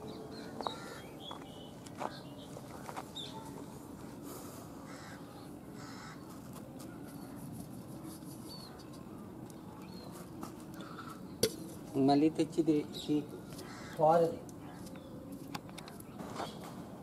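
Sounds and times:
crows cawing: 0.4 - 1.4, 4.8 - 6.3, 13.6 - 14.4.

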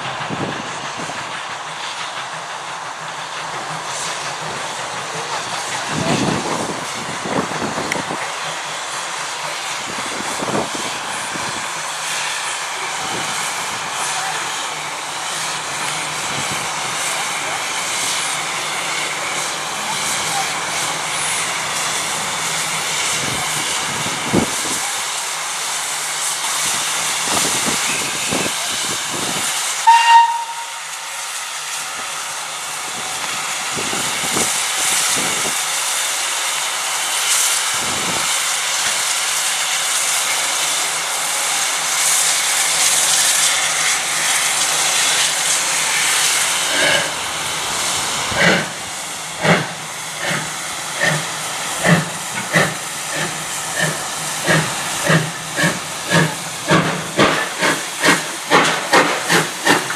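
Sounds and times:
steam hissing: 0.0 - 59.9
steam whistle blast: 29.8 - 31.0
locomotive exhaust beats: 49.4 - 59.9.

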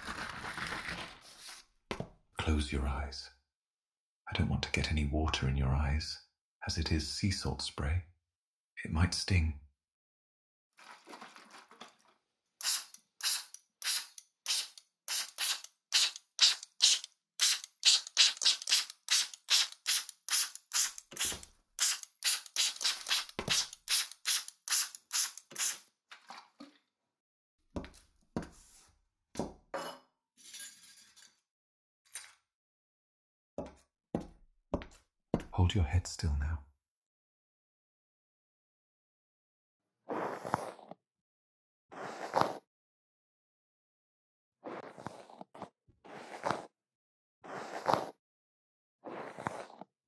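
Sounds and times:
spray bottle squirts: 12.6 - 25.9.

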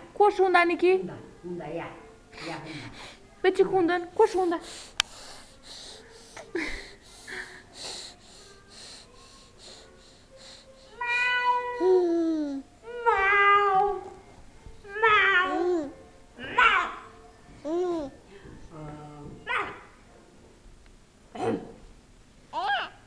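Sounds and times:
baby breathy huffs: 4.5 - 11.0.

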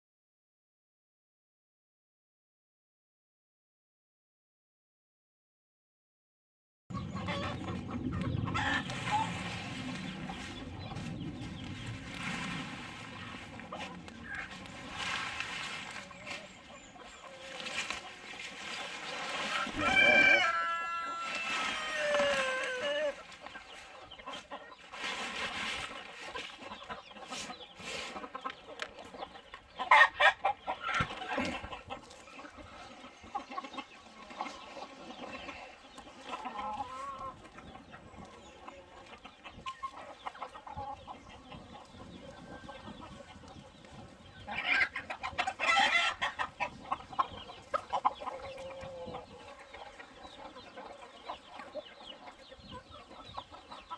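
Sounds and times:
chickens clucking: 6.9 - 53.9
chicken long falling call: 19.5 - 23.2.

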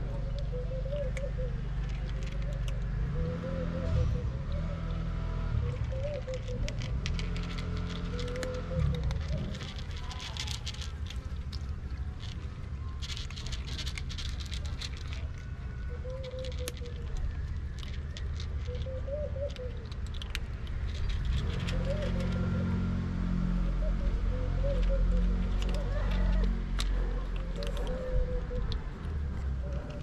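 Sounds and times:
cat crunching dry kibble: 0.0 - 3.0, 5.7 - 30.0.

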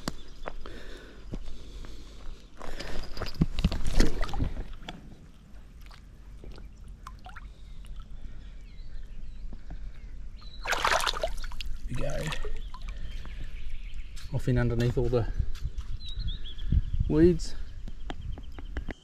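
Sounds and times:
water splashing and sloshing: 3.6 - 8.5, 10.6 - 13.6
water dripping: 4.0 - 8.3, 10.6 - 13.6.

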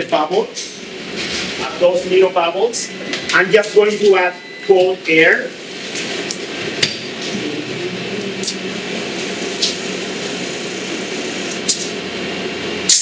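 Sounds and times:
air blower running: 5.6 - 13.0.

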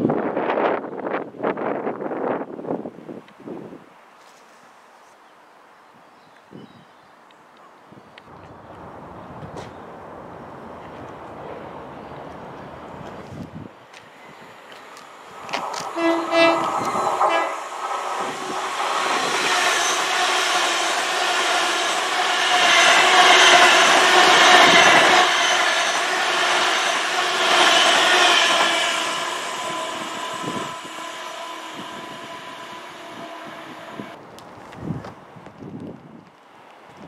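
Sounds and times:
train passing with rush of wheels: 8.3 - 35.4
train horn: 15.8 - 17.6, 19.1 - 34.2.

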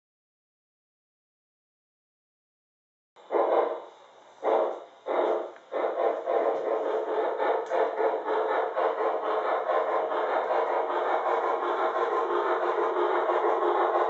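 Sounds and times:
model steam locomotive chuffing: 3.2 - 14.0.

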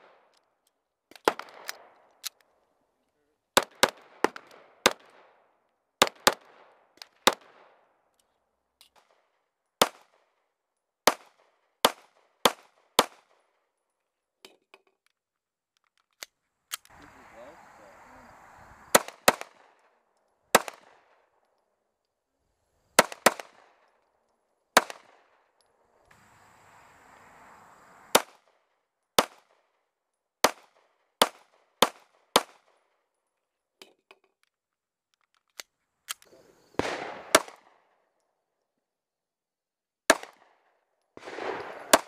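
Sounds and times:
pistol shots: 1.1 - 2.4, 3.6 - 5.4, 6.0 - 7.8, 11.0 - 13.5, 18.9 - 21.4, 23.0 - 23.9, 24.7 - 25.6, 28.1 - 28.5, 29.2 - 29.6, 30.4 - 32.8, 36.7 - 38.0, 40.1 - 42.0.

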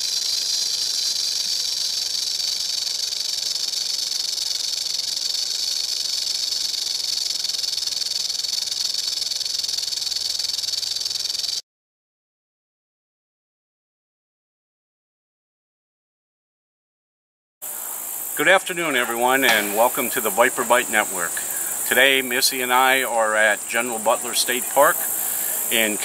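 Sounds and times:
snake hissing: 0.0 - 11.6, 17.6 - 26.0.

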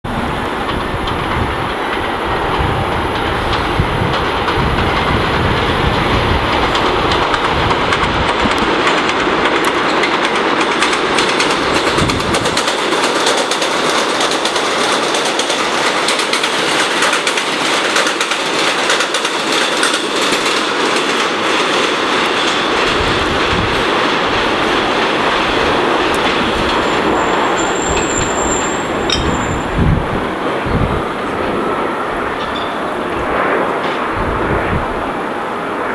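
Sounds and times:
train wheels rumbling on rail: 0.0 - 35.9
wheels clicking over rail joints: 0.2 - 29.8
thin high tone: 27.0 - 29.8.

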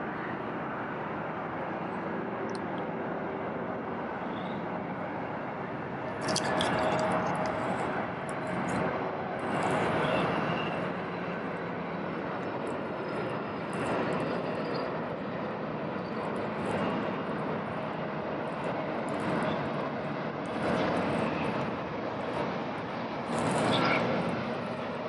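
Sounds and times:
jet engines rushing: 0.0 - 25.0.

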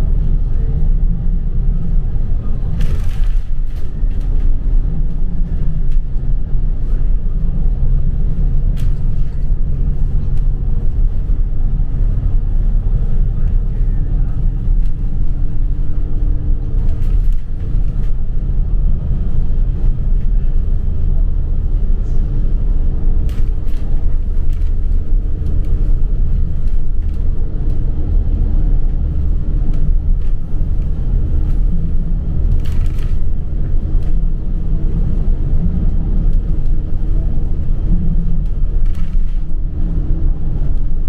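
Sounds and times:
bus engine and road rumble: 0.0 - 41.0.

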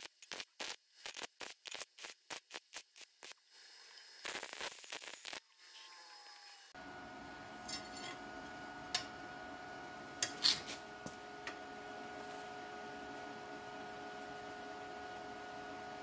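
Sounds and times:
electrical hum: 5.9 - 16.0.

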